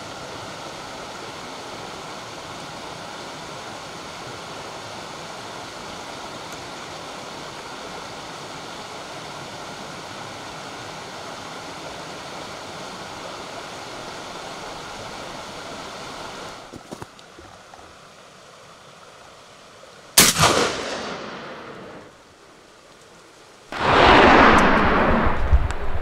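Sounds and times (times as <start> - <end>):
steady rushing hiss: 0.0 - 17.2
echoing gunshot: 20.2 - 22.1, 23.7 - 25.9.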